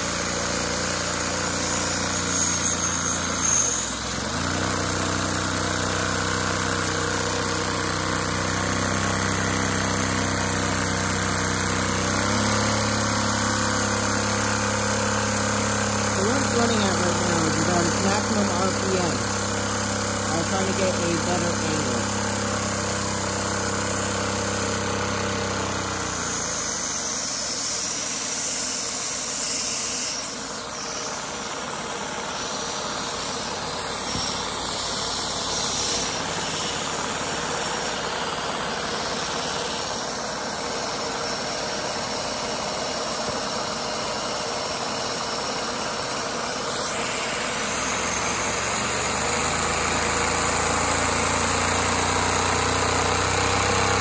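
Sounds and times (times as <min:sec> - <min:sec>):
toy engine mechanical whirring: 0:00.0 - 0:41.5.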